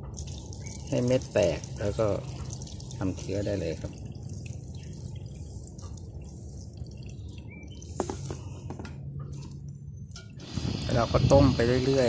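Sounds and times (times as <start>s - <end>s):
water sloshing in a metal bowl: 0.0s - 10.6s.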